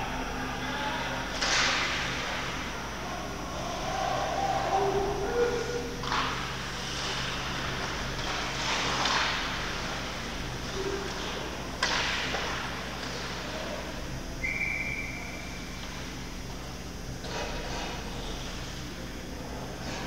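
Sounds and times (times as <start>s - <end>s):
crowd noise: 0.0s - 6.6s
steady whistle-like tone: 14.4s - 15.6s.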